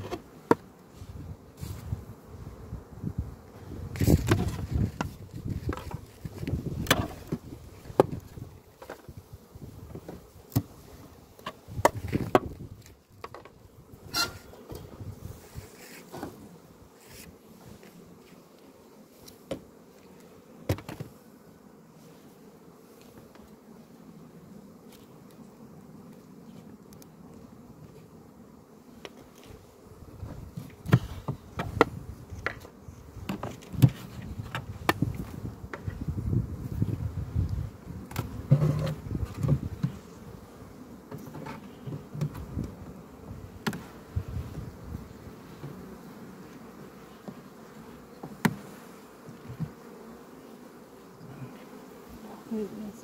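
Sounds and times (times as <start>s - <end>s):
hive tool knocking wooden frames: 0.0s - 0.8s, 4.0s - 9.1s, 11.4s - 12.6s, 20.6s - 21.2s, 30.2s - 36.1s, 38.1s - 40.1s, 41.1s - 42.9s, 43.6s - 44.0s, 47.2s - 50.0s
honey bees buzzing: 0.0s - 53.0s.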